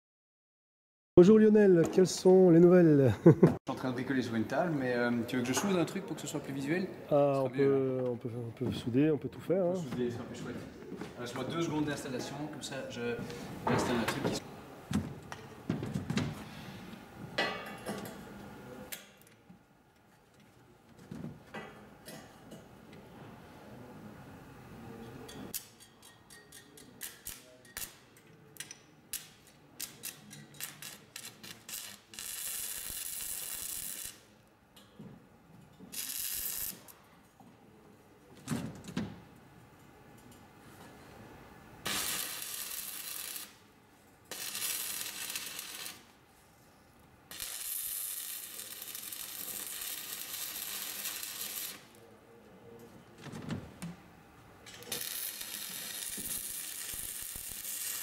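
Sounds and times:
welding arc crackle and sizzle: 29.1s - 34.4s, 35.9s - 37.0s, 41.8s - 46.2s, 47.3s - 52.0s, 54.7s - 58.0s.

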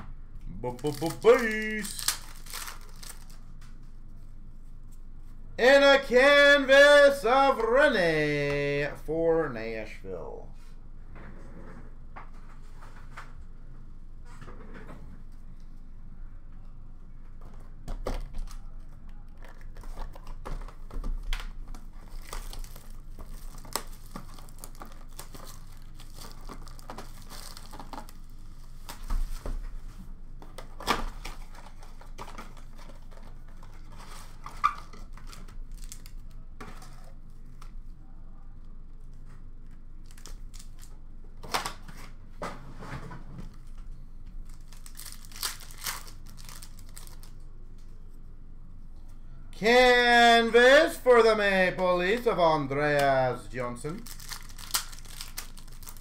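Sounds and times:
card packs tearing and crinkling: 0.6s - 3.4s, 22.0s - 28.2s, 30.8s - 36.2s, 44.5s - 47.4s, 53.9s - 56.0s
cards shuffling: 0.7s - 3.8s.

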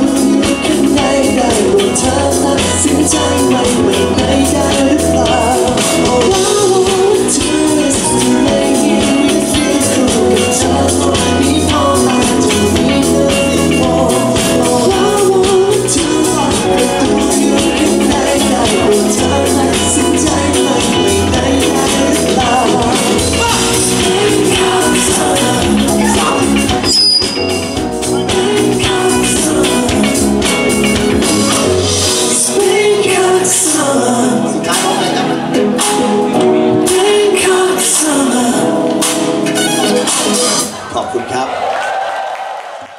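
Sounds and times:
drum beat: 0.0s - 32.4s
man singing: 0.0s - 40.8s
live band music: 0.0s - 41.4s.

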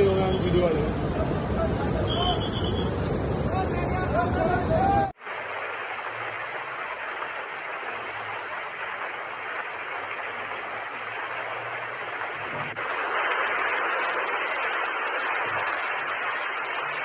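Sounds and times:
floodwater rushing: 5.2s - 17.0s.

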